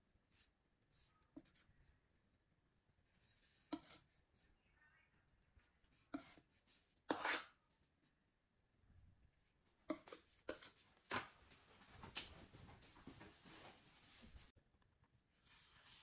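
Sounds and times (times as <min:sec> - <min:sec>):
spatula scraping frosting: 0:03.2 - 0:04.3, 0:05.9 - 0:07.8, 0:09.8 - 0:11.3.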